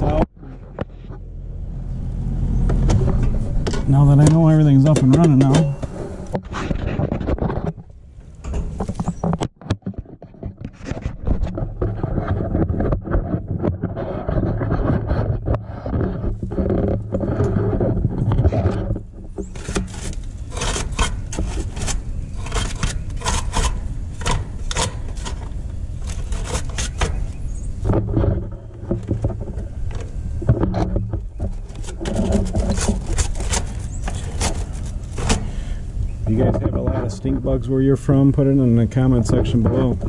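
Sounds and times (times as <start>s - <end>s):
steady low hum: 0.0s - 9.5s, 11.1s - 40.0s
brush scraping sheet metal: 3.0s - 7.8s, 10.7s - 37.6s.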